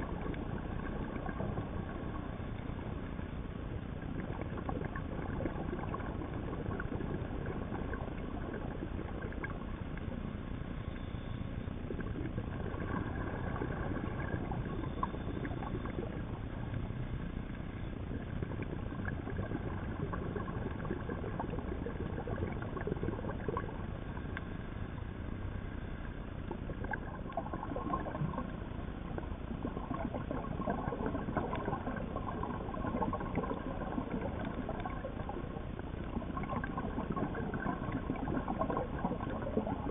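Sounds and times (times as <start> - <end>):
faint crackles and clicks: 0.0 - 39.9
underwater low rumble: 0.0 - 39.9.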